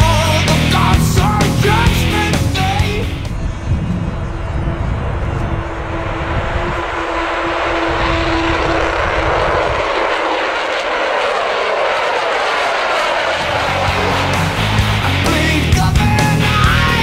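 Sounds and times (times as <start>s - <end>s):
model plane motor buzzing: 4.2s - 15.0s.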